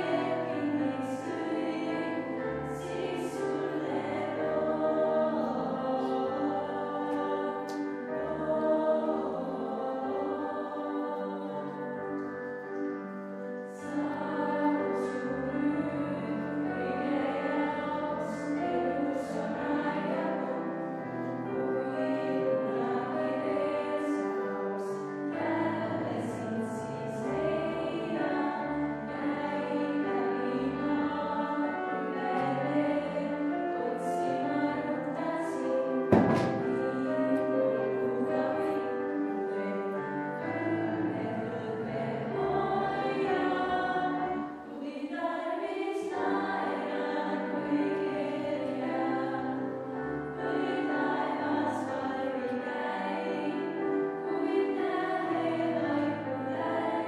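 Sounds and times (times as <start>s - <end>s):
girls choir singing in harmony: 0.0s - 57.0s
piano accompaniment: 0.0s - 57.0s
sharp knock: 36.1s - 36.8s.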